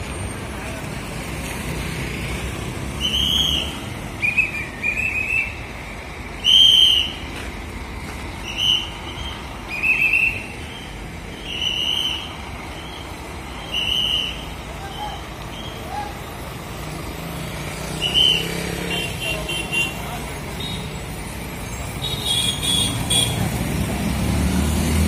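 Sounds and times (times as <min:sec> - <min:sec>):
whistle blasts: 0:03.0 - 0:05.6, 0:06.4 - 0:07.3, 0:08.4 - 0:10.6, 0:11.4 - 0:13.0, 0:13.6 - 0:16.0, 0:18.0 - 0:18.5.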